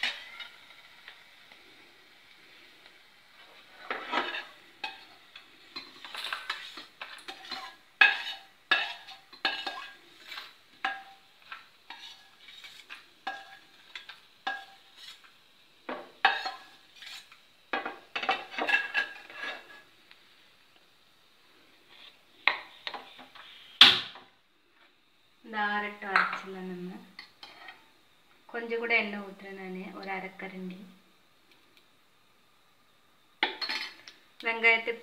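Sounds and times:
ladle scraping a metal pan: 3.5s - 5.2s, 5.8s - 13.6s, 14.5s - 15.3s, 16.2s - 17.4s, 18.2s - 19.9s.

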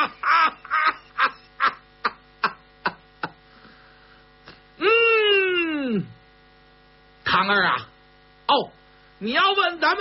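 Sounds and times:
man laughing: 0.0s - 3.4s
electrical mains hum: 0.0s - 10.0s
man humming hmm: 4.8s - 6.2s.

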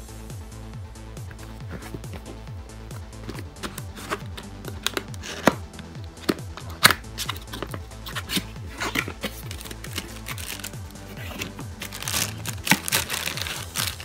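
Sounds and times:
background music with beat: 0.0s - 14.0s
cardboard box snapping: 3.2s - 14.0s
sticker peeling: 3.2s - 14.0s.

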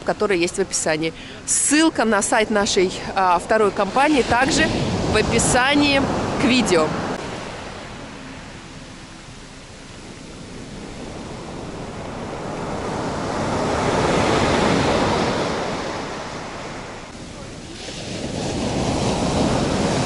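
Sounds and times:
surf breaking on sandy beach: 3.6s - 8.1s, 10.1s - 20.0s.

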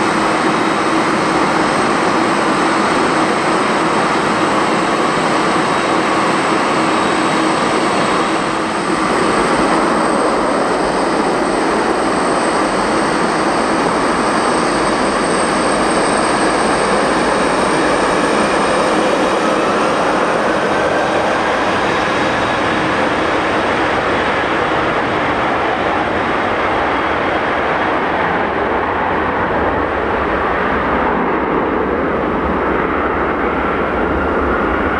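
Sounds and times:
jet engine roar and whine: 0.0s - 34.9s.

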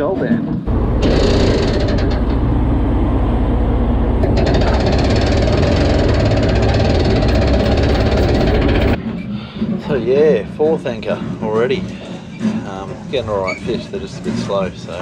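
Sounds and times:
anchor winch rattling: 0.7s - 9.0s.

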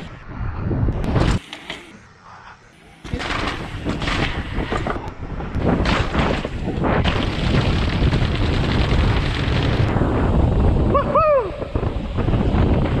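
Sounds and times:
wind buffeting microphone: 0.0s - 1.4s, 3.0s - 13.0s
bike rattling and thumping: 3.0s - 10.1s.

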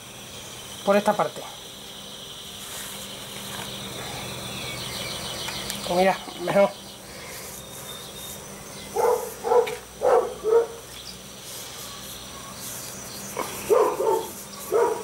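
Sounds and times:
dog barking: 8.9s - 10.8s, 13.7s - 15.0s.

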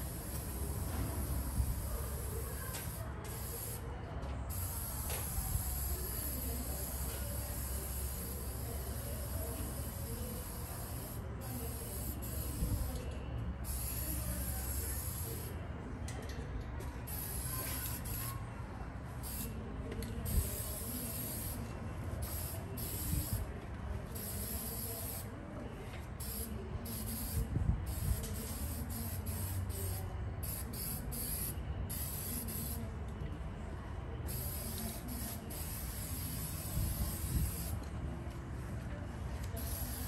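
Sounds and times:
spray paint can hissing: 0.0s - 3.9s, 4.5s - 15.5s, 17.1s - 18.3s, 19.2s - 19.5s, 20.2s - 21.6s, 22.2s - 23.5s, 24.1s - 25.3s, 26.2s - 32.8s, 34.3s - 37.8s, 39.6s - 40.0s.

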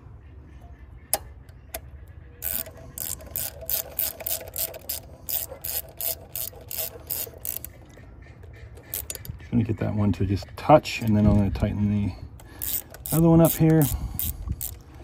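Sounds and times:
socket ratchet clicking: 2.4s - 7.8s, 12.4s - 15.0s.

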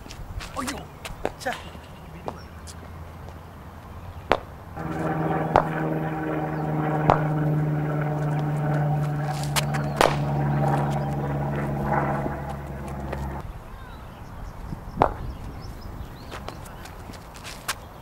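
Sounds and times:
droning motor hum: 1.7s - 13.4s.

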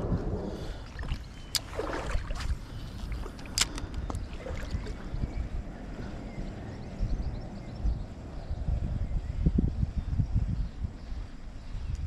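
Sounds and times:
river water lapping: 0.0s - 6.4s
wind rumble on microphone: 0.0s - 12.0s
sharp clicks: 3.3s - 4.2s.

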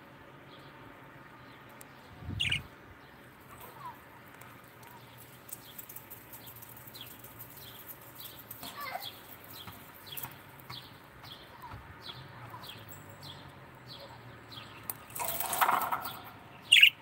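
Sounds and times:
parakeets chirping: 1.4s - 3.2s, 9.1s - 17.0s.

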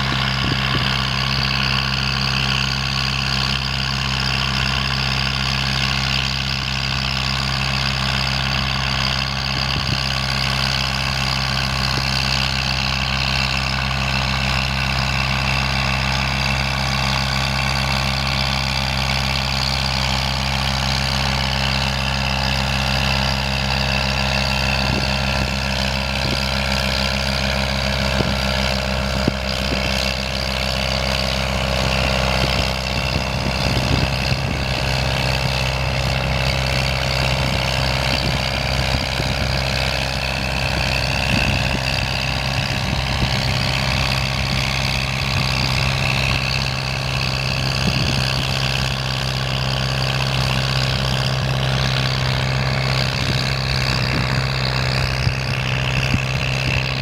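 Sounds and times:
tractor diesel engine droning: 0.0s - 57.0s.

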